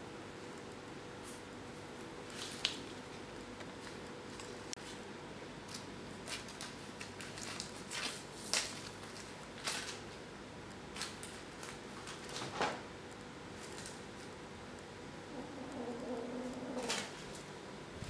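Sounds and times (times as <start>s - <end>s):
paper rustling and crinkling: 2.2s - 5.0s, 5.6s - 10.2s, 10.9s - 12.8s, 13.6s - 14.3s, 16.7s - 17.5s.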